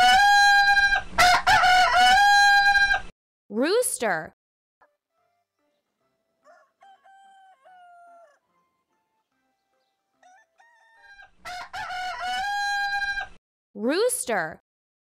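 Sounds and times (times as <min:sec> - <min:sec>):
rooster crowing: 0:00.0 - 0:03.1, 0:05.2 - 0:13.4.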